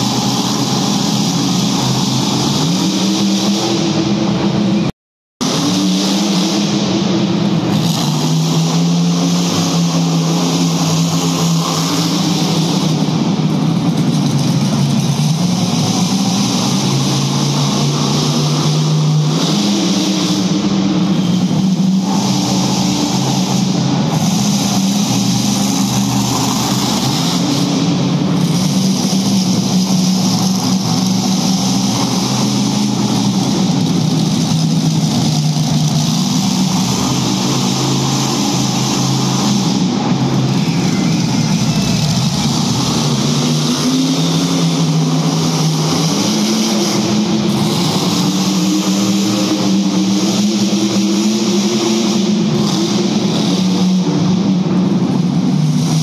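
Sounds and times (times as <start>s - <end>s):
truck engine revving: 0.0s - 56.0s.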